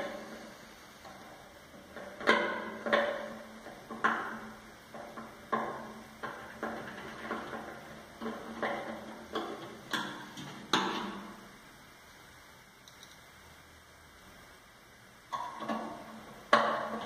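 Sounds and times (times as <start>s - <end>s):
screwdriver clicks and metallic taps: 12.9s - 13.2s.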